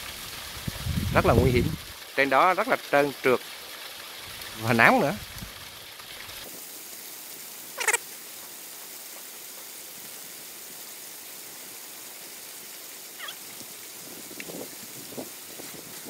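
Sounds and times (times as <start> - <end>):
animal call: 7.8 - 8.0, 13.2 - 13.4.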